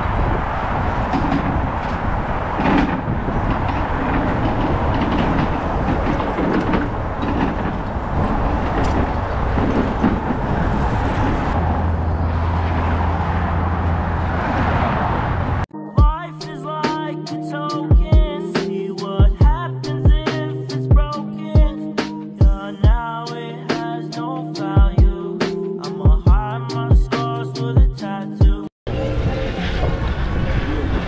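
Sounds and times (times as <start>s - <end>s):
wind noise on camera: 0.0s - 11.6s, 29.0s - 31.0s
highway traffic rumble: 0.0s - 15.7s, 28.9s - 31.0s.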